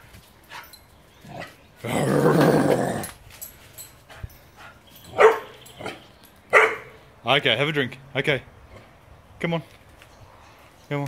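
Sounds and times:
puppy growling: 1.3s - 3.2s.

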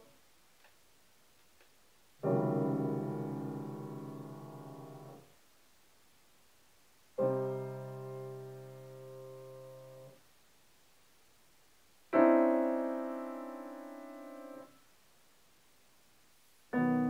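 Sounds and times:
piano chords: 2.2s - 5.3s, 12.2s - 14.8s, 16.7s - 17.0s.

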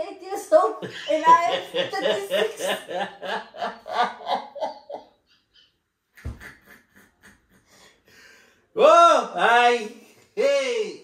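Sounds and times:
man laughing: 0.9s - 5.1s, 6.2s - 7.7s.

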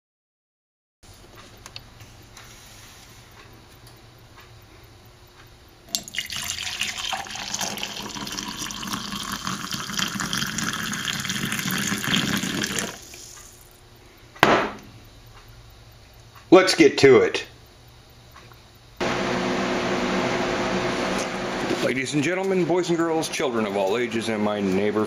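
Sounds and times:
coffee pouring into mug: 5.9s - 13.7s
sharp knock: 14.4s - 14.8s.

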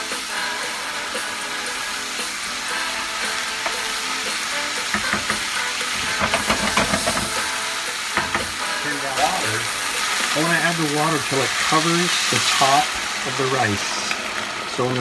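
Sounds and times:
food sizzling in a pan: 0.0s - 15.0s
wooden spoon scraping a pan: 4.9s - 10.5s.

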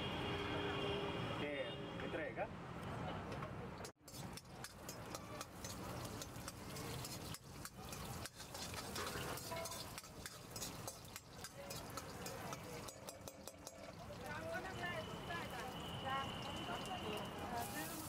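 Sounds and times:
metal ladle scraping pan: 4.0s - 14.1s
chillies frying in oil: 4.0s - 18.0s.

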